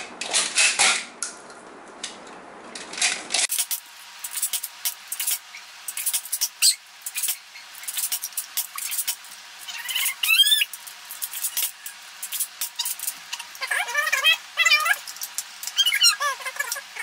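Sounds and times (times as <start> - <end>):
high wavering squeal: 6.5 - 12.1.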